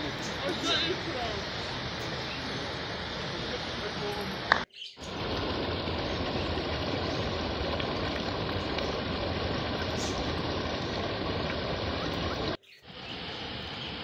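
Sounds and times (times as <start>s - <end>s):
stream water rushing: 0.0s - 14.0s.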